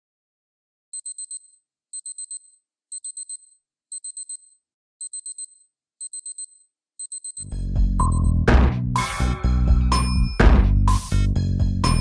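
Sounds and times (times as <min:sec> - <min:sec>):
electronic alarm high beeps: 0:01.0 - 0:08.4, 0:10.0 - 0:10.4.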